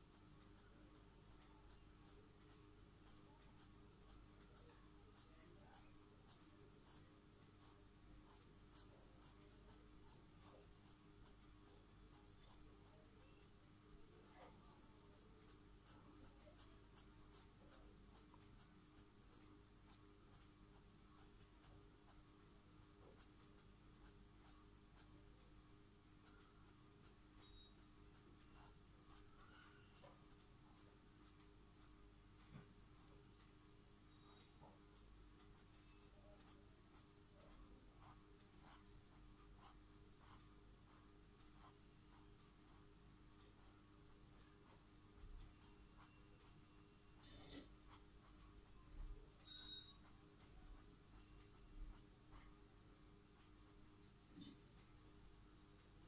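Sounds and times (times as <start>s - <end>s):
faint steady hum: 0.0s - 56.0s
marker scratching on paper: 1.7s - 7.0s, 7.6s - 13.0s, 15.5s - 22.2s, 26.2s - 33.1s, 36.4s - 42.9s, 53.4s - 56.0s.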